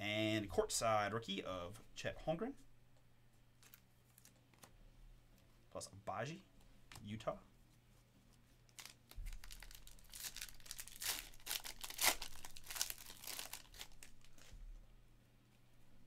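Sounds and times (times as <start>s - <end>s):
sharp crackles and rips: 8.6s - 14.6s
foil wrapper tearing and crinkling: 8.7s - 14.5s.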